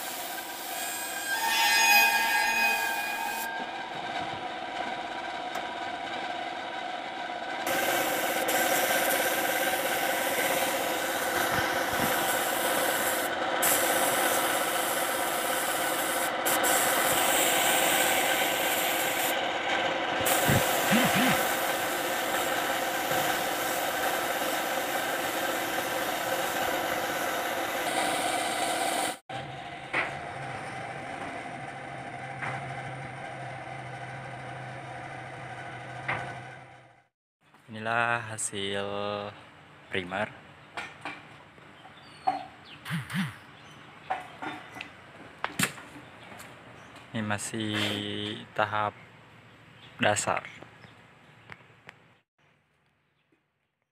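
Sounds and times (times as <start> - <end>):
machine hum: 2.4 - 37.1
spray gun hissing: 7.7 - 19.4, 20.2 - 29.2.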